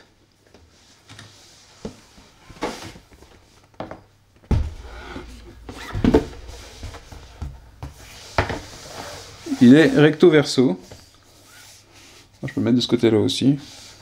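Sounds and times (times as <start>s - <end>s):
board thud: 4.5s - 8.6s
cardboard rubbing and sliding: 4.7s - 10.2s.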